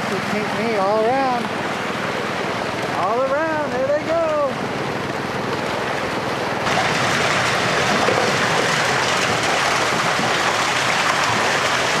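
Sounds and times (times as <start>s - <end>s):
water gushing down a slide: 4.4s - 12.0s.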